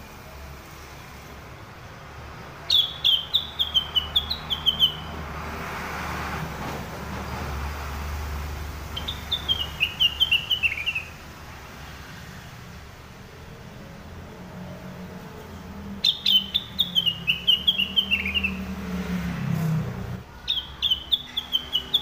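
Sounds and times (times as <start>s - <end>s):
bird chirping: 2.5s - 5.3s, 8.9s - 11.2s, 15.9s - 19.0s, 20.4s - 22.0s.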